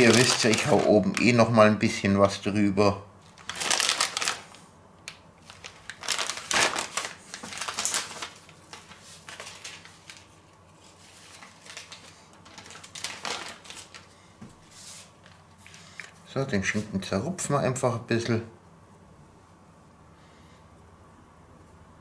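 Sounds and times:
plastic bag crinkling: 0.0s - 1.7s, 3.2s - 14.2s.

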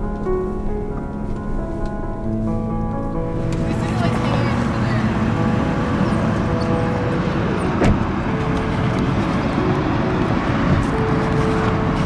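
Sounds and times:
freeway traffic rumble: 0.0s - 12.0s
short thump: 7.8s - 8.0s.

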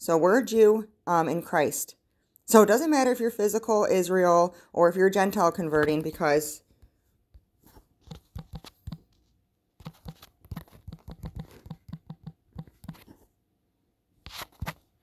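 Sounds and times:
fingertip taps on touchscreen: 9.8s - 13.1s.

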